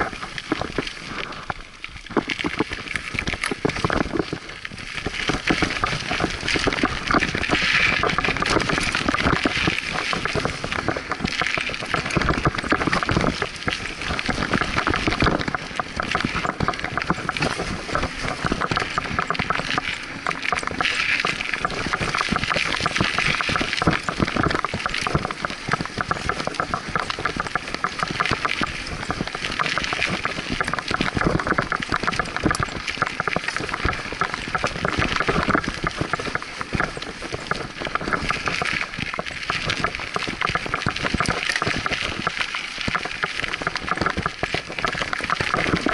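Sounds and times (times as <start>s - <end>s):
bike rattling over rough ground: 0.0s - 45.9s
bike tyres on dirt: 0.0s - 45.9s.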